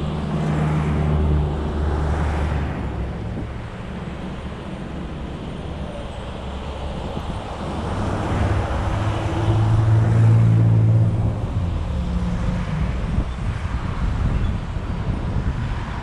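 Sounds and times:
car road and engine noise: 0.0s - 16.0s.

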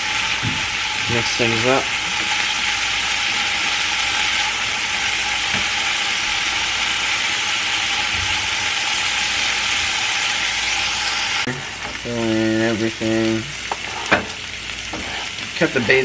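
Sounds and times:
green beans sizzling in a pan: 0.0s - 16.0s
spatula stirring in a pan: 13.7s - 15.9s.

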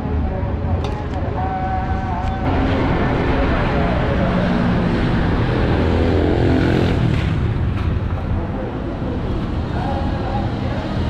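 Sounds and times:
vehicles passing: 0.0s - 11.0s
engine revving up: 2.4s - 7.6s.

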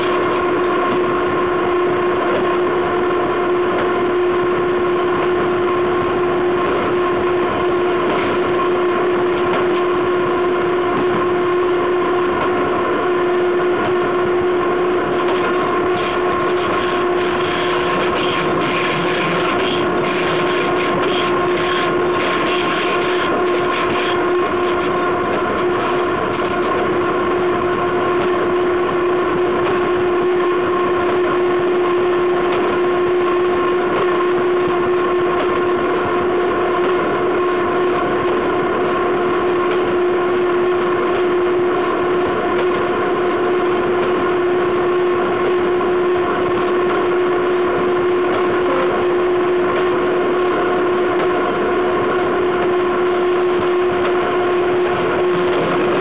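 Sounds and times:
high-pitched tone: 48.4s - 49.6s.

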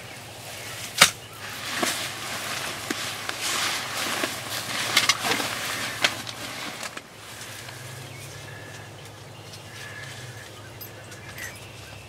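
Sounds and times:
faint bird calls: 0.0s - 12.0s
steady low hum: 0.0s - 12.0s
rustling: 0.5s - 8.8s.

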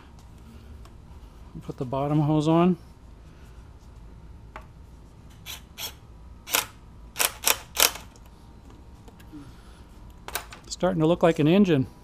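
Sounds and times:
tools and hard parts clicking: 5.4s - 8.3s.

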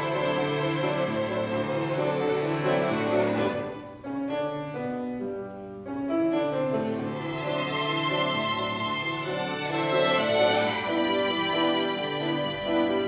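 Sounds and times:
violins playing slow melody: 0.0s - 4.0s, 6.8s - 13.0s
piano accompaniment: 0.0s - 13.0s.

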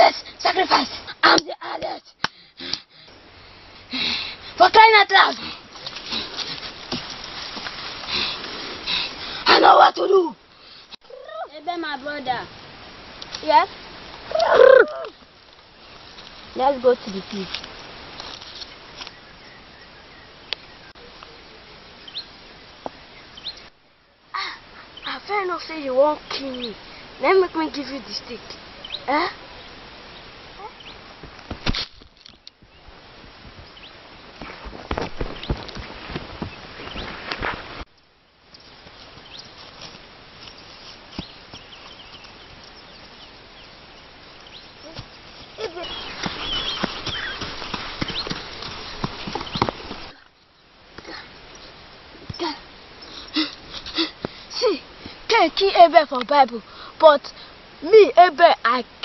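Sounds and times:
outdoor background hiss: 0.0s - 59.0s
high rising chirp: 41.6s - 48.5s.

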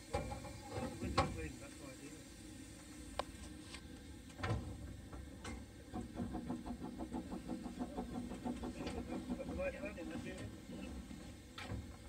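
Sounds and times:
steam engine ticking: 5.6s - 10.9s.

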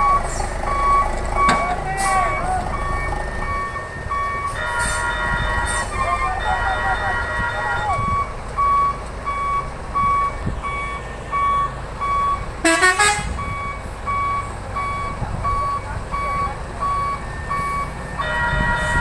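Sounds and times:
diesel engine running: 0.0s - 19.0s
truck reversing alarm beeping: 0.0s - 19.0s
horn toot: 4.5s - 8.0s, 12.6s - 13.4s, 18.2s - 19.0s.

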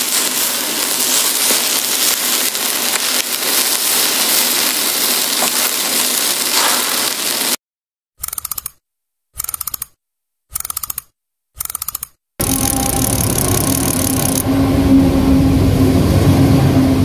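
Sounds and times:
barbecue grill sizzling: 0.0s - 7.6s, 12.4s - 14.7s.

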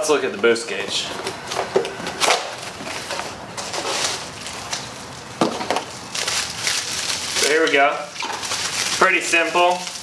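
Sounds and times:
cardboard box rustling and scraping: 2.6s - 4.3s.

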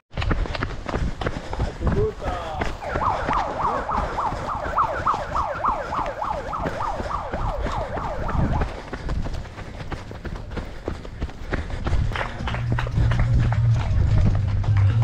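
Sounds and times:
siren-like warbling tone: 2.8s - 8.7s.

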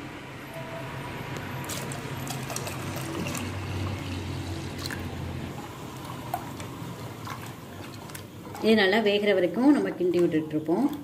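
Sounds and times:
batter pouring and splashing: 1.6s - 9.0s.

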